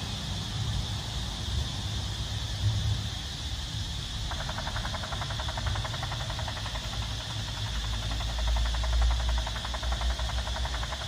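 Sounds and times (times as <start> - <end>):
electronic helicopter rotor sound: 4.0 - 11.0.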